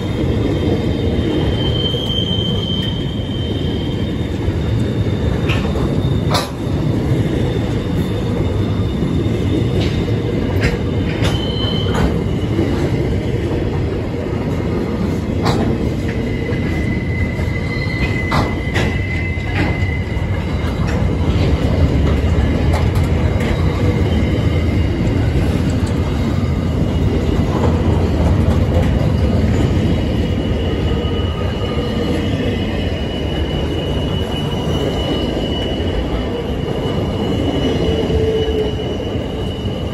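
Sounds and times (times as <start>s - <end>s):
train wheels rumbling on rail: 0.0s - 39.9s
high wheel squeal: 0.5s - 10.2s, 10.9s - 13.0s, 15.9s - 21.4s, 29.4s - 39.9s.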